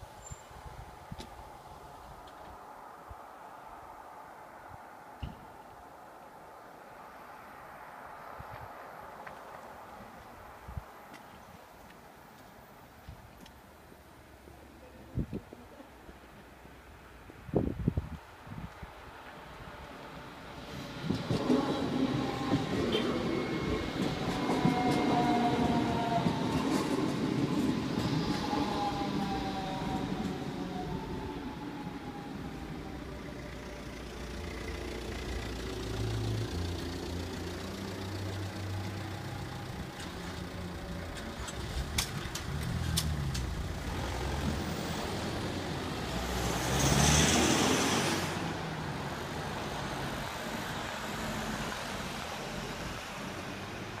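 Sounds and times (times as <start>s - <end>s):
car passing close: 19.7s - 54.0s
car engines idling: 32.6s - 46.1s.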